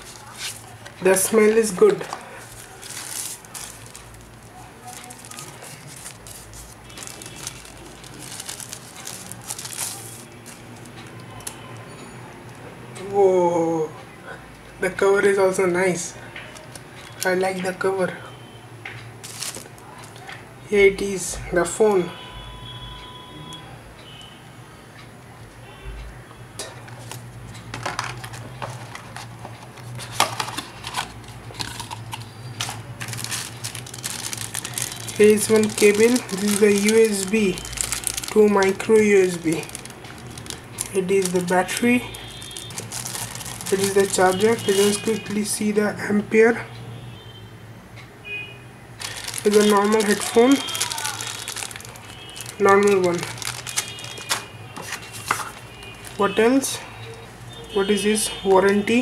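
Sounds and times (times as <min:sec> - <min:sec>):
plastic wrapper crinkling: 0:00.0 - 0:11.7, 0:16.4 - 0:17.6, 0:19.2 - 0:20.4, 0:27.0 - 0:45.6, 0:49.0 - 0:56.3
plastic bags rustling: 0:00.0 - 0:11.8, 0:16.3 - 0:17.8, 0:19.2 - 0:20.4, 0:26.8 - 0:45.8, 0:49.0 - 0:56.4.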